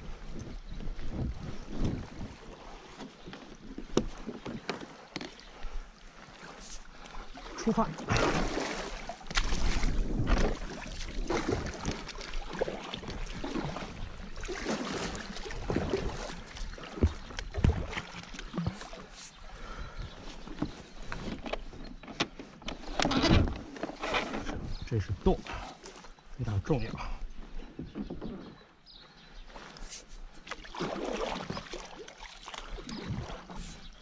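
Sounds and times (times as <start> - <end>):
kayak paddle splashing water: 2.2 - 20.4, 30.4 - 34.0.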